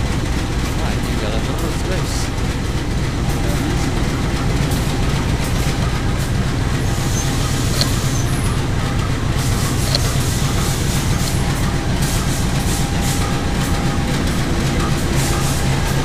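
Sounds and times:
diesel locomotive low rumble: 0.0 - 16.0
click: 7.2 - 8.5, 9.8 - 10.3.

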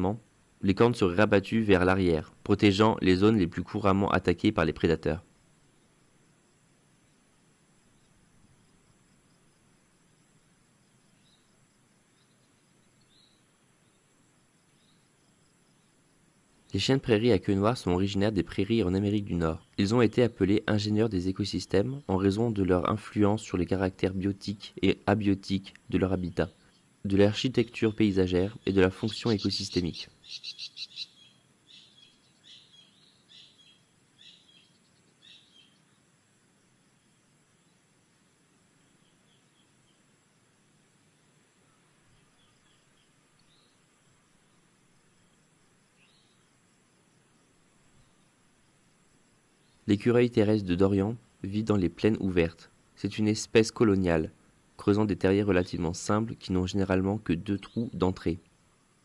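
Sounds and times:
faint background hiss: 0.0 - 59.0
faint high chirps: 7.0 - 36.2
faint high animal chirps: 28.6 - 35.9.

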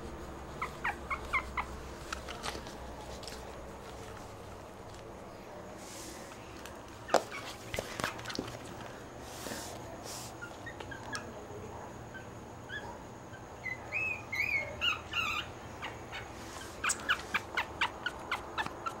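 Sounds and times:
puppy squeaking and whimpering: 0.5 - 1.8, 10.4 - 11.3, 12.1 - 19.0.

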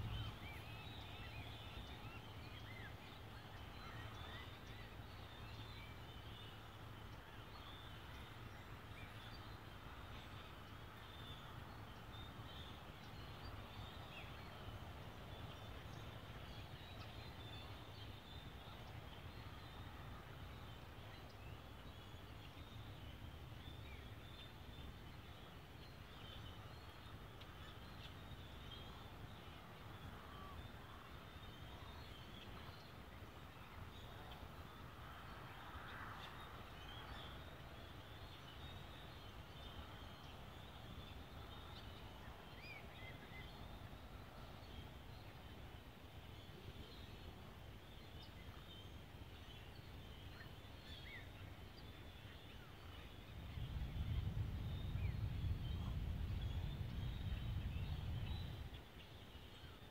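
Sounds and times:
low steady rumble: 49.4 - 58.8.

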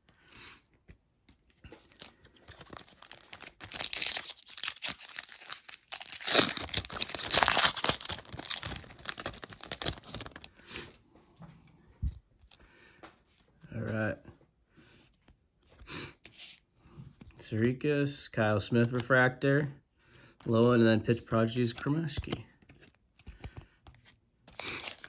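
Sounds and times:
foil wrapper crinkling and tearing: 1.8 - 10.5, 24.5 - 25.0.

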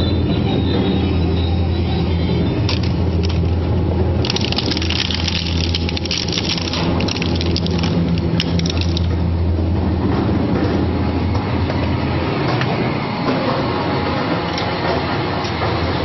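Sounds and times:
plastic cracking and snapping: 4.2 - 9.1.

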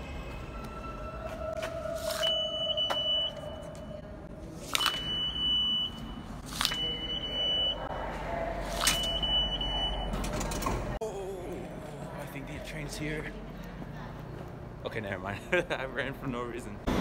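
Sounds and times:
card reader beeping: 4.7 - 7.8, 8.8 - 10.3.

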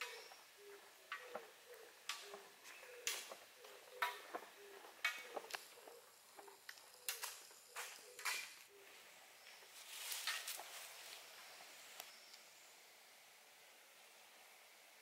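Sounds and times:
bird bill clicking and snapping: 6.6 - 8.7.

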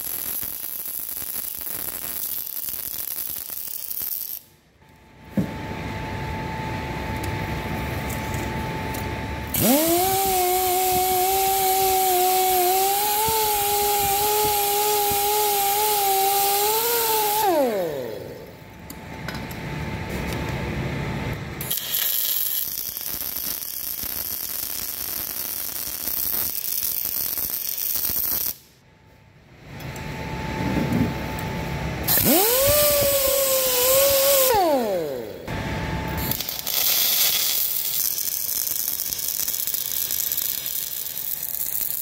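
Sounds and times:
welding crackling: 0.0 - 4.5, 9.5 - 18.6, 21.6 - 28.7, 36.2 - 42.0
wire wheel grinder running: 9.5 - 18.6, 32.0 - 42.0.

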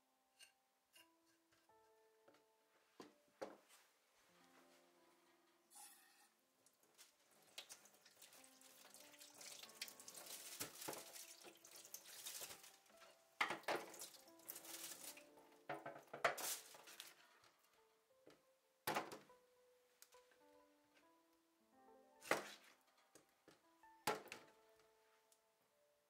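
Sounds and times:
tap water splashing in sink: 7.4 - 12.8, 13.4 - 15.2.

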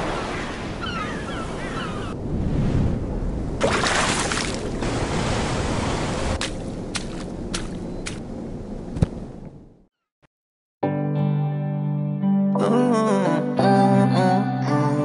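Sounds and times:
ocean surf washing onto beach: 2.7 - 7.5.

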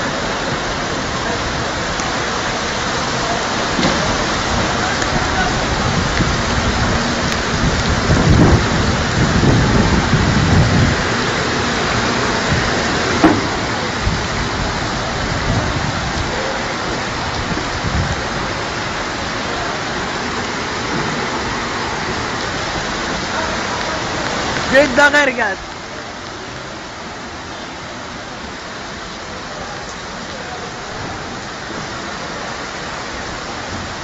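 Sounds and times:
low rumbling: 0.0 - 23.8
flood water hissing: 0.0 - 34.0.

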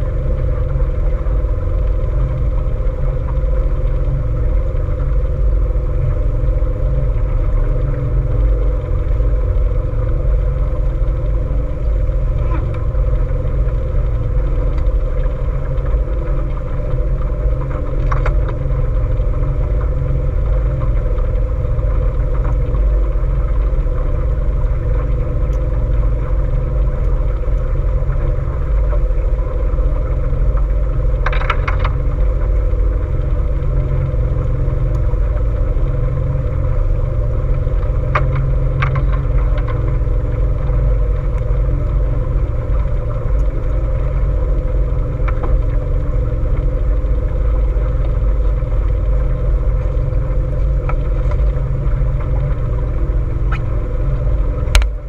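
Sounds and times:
boat motor running: 0.0 - 55.0.

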